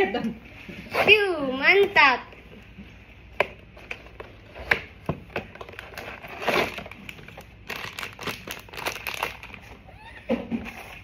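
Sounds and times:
foil bag crinkling: 5.4s - 9.9s.

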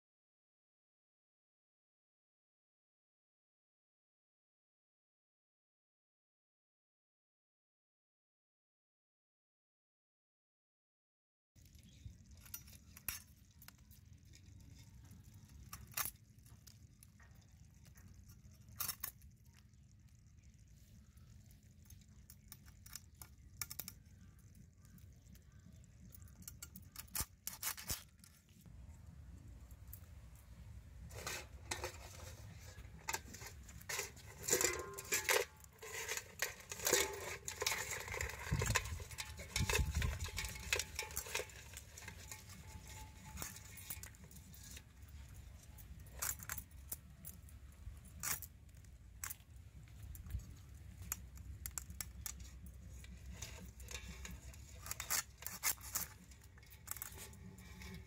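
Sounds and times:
crab shells cracking and crunching: 11.6s - 28.6s, 29.6s - 58.0s.

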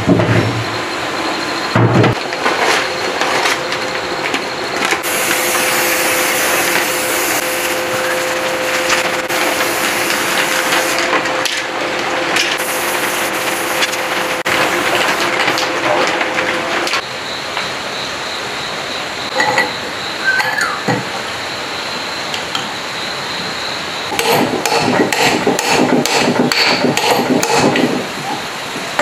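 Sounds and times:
steady hum: 0.0s - 29.0s
spray gun hissing: 5.0s - 11.0s, 12.6s - 15.4s.

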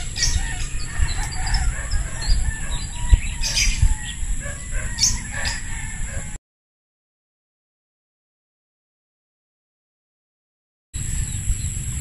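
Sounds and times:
chickens calling: 0.0s - 6.4s.

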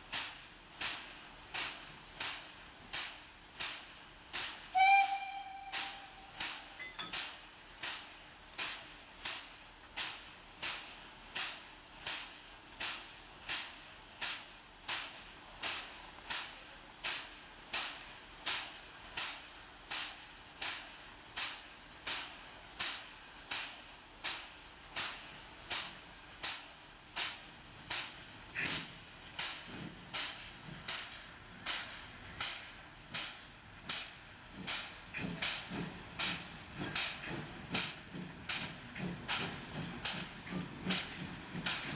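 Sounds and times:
steam locomotive hissing puffs: 0.0s - 41.9s.

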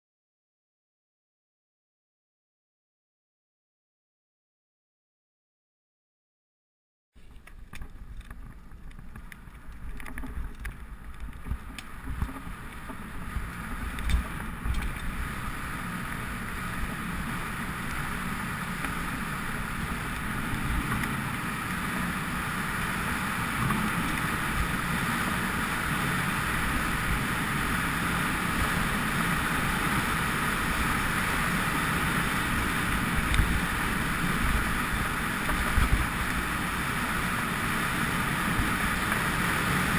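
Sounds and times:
wind rushing over microphone: 10.4s - 39.9s.

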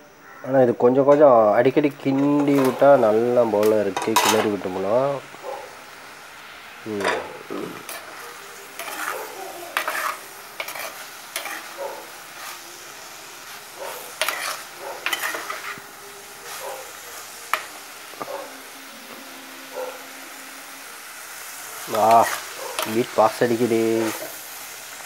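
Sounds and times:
curry sizzling: 0.0s - 25.0s
spoon scraping clay pot: 9.8s - 11.7s, 14.2s - 15.8s.

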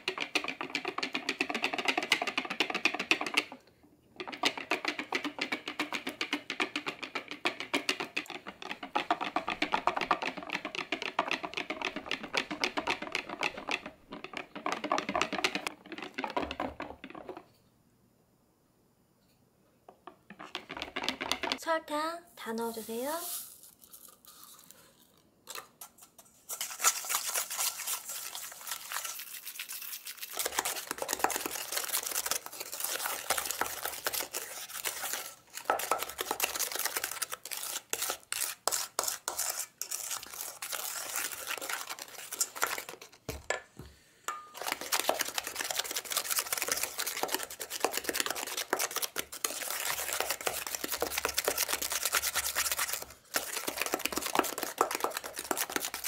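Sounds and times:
whisk scraping metal bowl: 4.2s - 17.4s, 26.0s - 43.2s, 44.6s - 56.0s.

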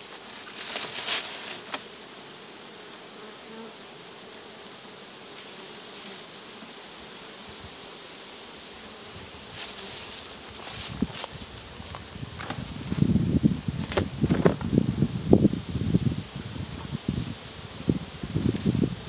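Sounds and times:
bees buzzing: 0.0s - 19.0s
knocks and rustles: 9.6s - 14.7s.

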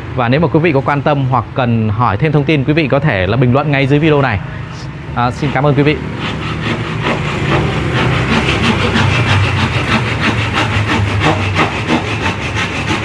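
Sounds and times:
hand saw cutting wood: 5.3s - 13.0s.

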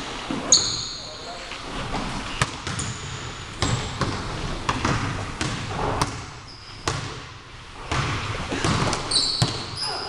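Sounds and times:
basketball bouncing on wooden floor: 2.4s - 7.2s, 7.9s - 9.9s.

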